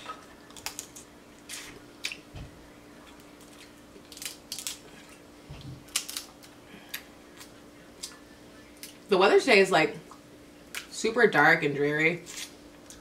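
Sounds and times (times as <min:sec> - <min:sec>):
crab shells cracking: 0:00.4 - 0:02.2, 0:03.2 - 0:04.9, 0:05.8 - 0:08.2.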